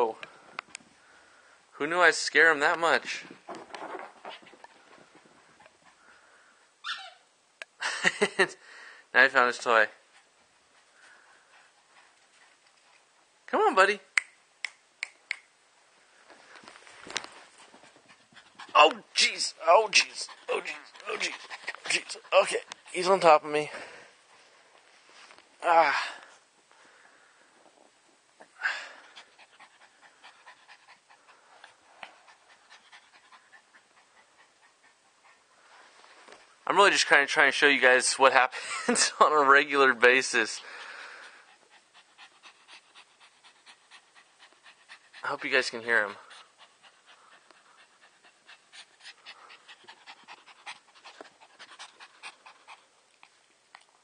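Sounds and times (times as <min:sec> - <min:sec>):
dog panting: 0:04.0 - 0:06.6, 0:09.9 - 0:13.3, 0:17.2 - 0:24.7, 0:28.8 - 0:54.0.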